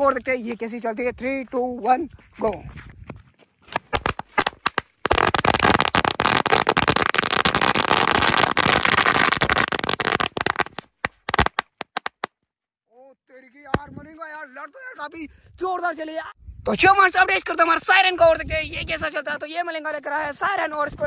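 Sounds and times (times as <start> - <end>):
firecrackers banging: 4.0 - 12.3.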